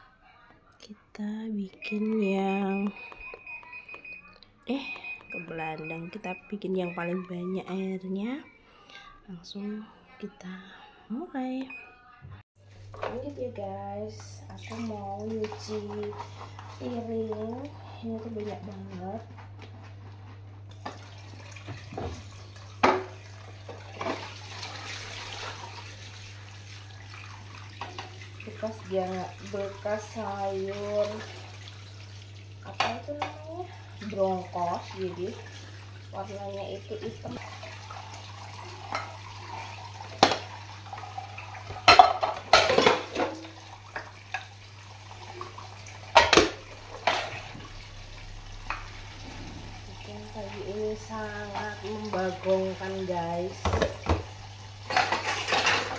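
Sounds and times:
tap water running into sink: 0:13.0 - 0:19.7, 0:20.7 - 0:55.9
sponge scrubbing dishes: 0:14.5 - 0:44.5, 0:45.1 - 0:47.7, 0:48.7 - 0:55.9.

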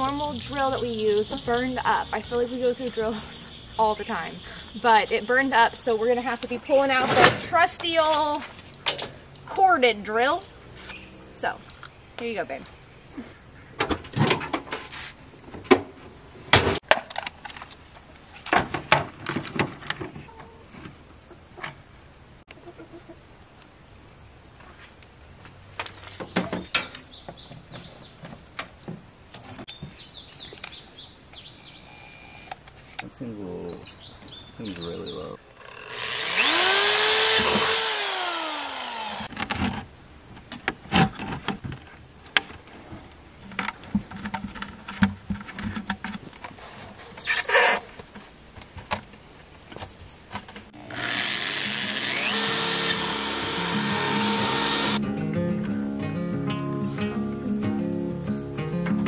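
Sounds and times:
birds chirping: 0:09.2 - 0:13.8, 0:25.8 - 0:35.6
electric drill boring plastic: 0:35.6 - 0:39.3, 0:50.8 - 0:55.0
plastic parts and tools knocking: 0:43.5 - 0:46.6
background music: 0:53.4 - 0:59.0.

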